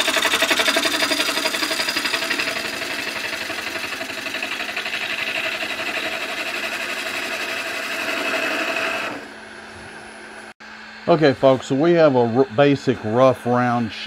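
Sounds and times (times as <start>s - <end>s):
turning tool cutting wood on lathe: 0.0s - 9.4s
lathe humming: 0.0s - 14.0s.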